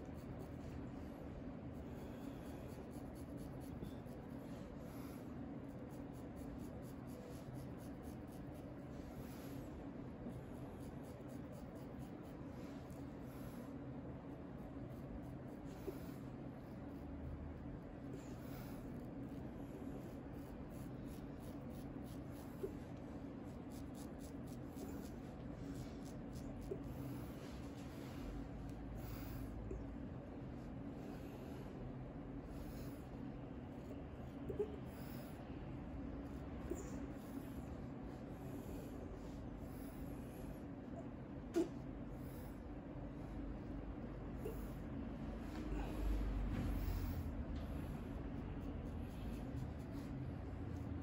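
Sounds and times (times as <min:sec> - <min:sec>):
steady low hum: 0:00.0 - 0:51.0
razor scraping stubble: 0:17.8 - 0:27.3.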